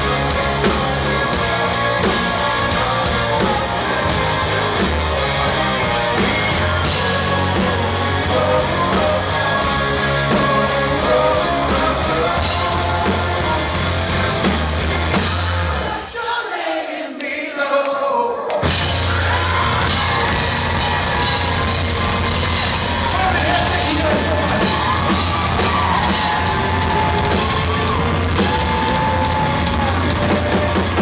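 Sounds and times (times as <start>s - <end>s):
person singing: 0.0s - 14.0s
live rock band playing: 0.0s - 16.1s, 18.6s - 31.0s
crowd cheering and yelling: 0.0s - 16.8s, 18.2s - 31.0s.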